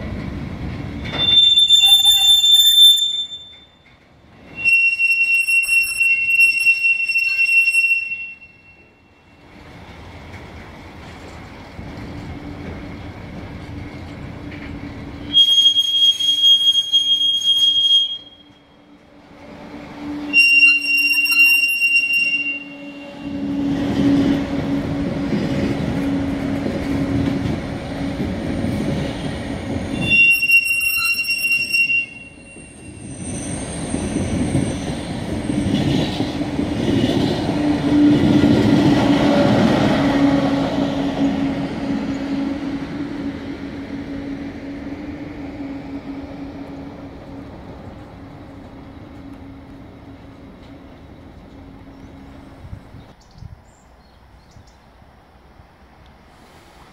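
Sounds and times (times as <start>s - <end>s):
train wheels rumbling on rails: 0.0s - 56.9s
train wheels squealing: 1.0s - 9.7s, 15.1s - 19.0s, 20.0s - 24.4s, 28.5s - 42.4s.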